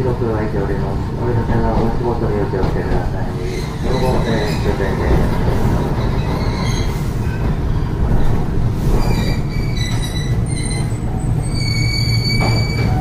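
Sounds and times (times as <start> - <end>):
tram running gear rumble: 0.0 - 13.0
steel wheels squealing on rails: 3.2 - 13.0.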